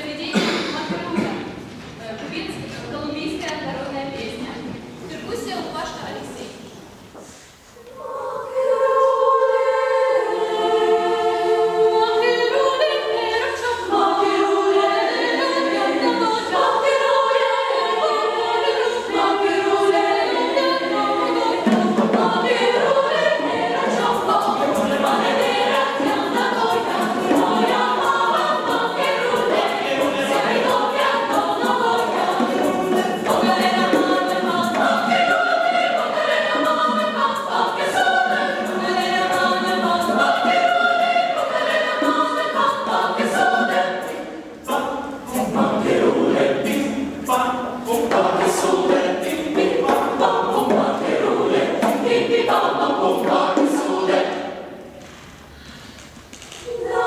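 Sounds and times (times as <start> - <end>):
lower voices singing: 7.0 - 57.0
upper voices singing chords: 7.8 - 54.8
quick percussion: 20.8 - 54.7.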